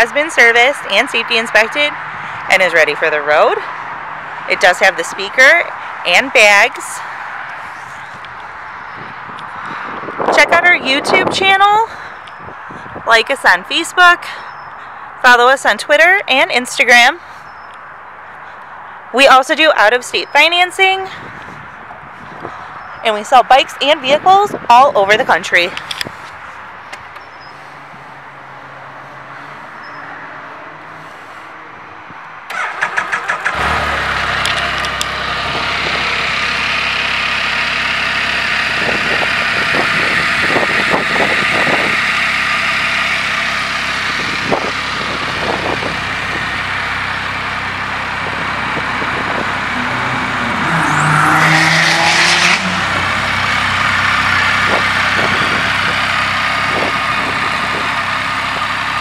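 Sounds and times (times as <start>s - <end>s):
engine starter cranking: 32.5s - 37.7s
engine idling: 32.5s - 50.8s, 52.7s - 59.0s
engine revving: 32.5s - 59.0s.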